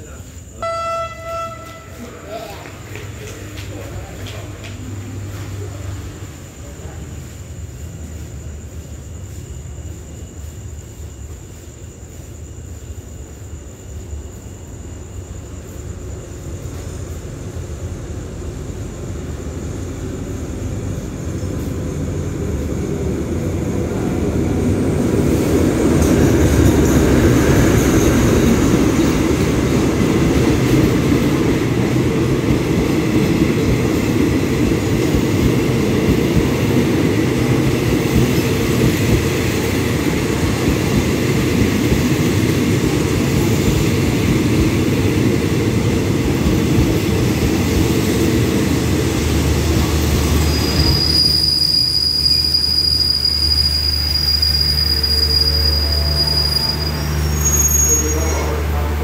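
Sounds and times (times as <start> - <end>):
diesel locomotive engine: 0.0 - 59.0
train coaches rumbling: 0.0 - 59.0
faint high squeal: 50.1 - 58.9.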